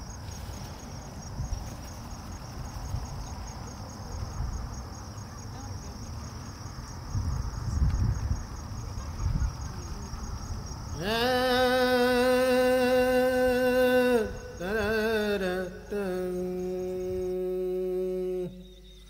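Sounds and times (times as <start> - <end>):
insect trilling: 8.8 - 19.0
person singing wordless chant: 10.9 - 19.0.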